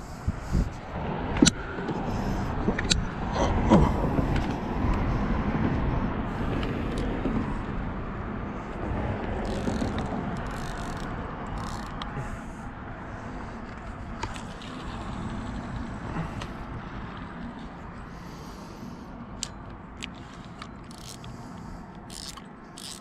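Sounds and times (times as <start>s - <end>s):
road traffic passing: 0.0s - 23.0s
sharp clicks: 9.4s - 12.2s.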